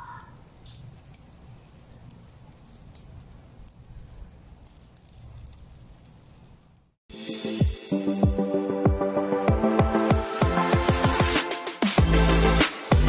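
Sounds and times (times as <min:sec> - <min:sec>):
pops and crackles: 0:00.2 - 0:07.0.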